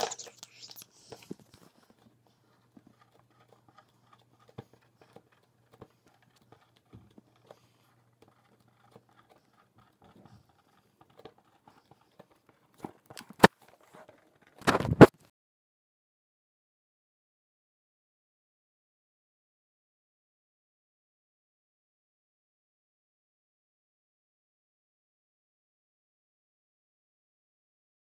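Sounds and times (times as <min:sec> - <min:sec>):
markers and paper rustling: 0:00.0 - 0:15.1.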